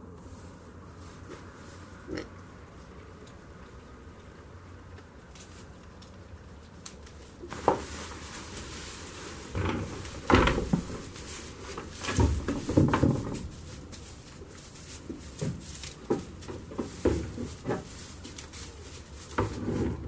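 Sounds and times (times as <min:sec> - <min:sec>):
rustling straw: 0:00.0 - 0:02.2, 0:06.9 - 0:20.0
knocks against wooden boards: 0:09.6 - 0:11.0, 0:12.0 - 0:13.4.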